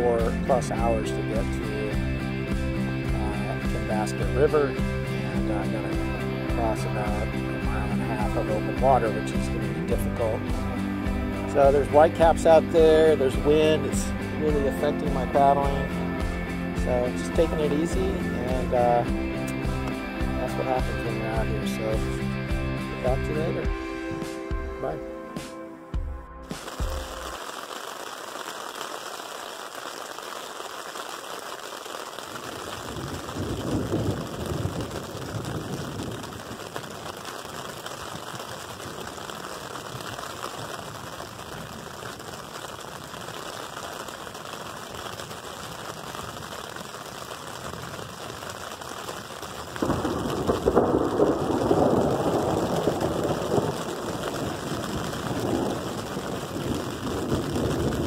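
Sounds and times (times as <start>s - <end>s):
rain hiss: 0.0s - 25.0s, 26.5s - 58.0s
thunder rumbling: 32.7s - 42.3s, 49.6s - 58.0s.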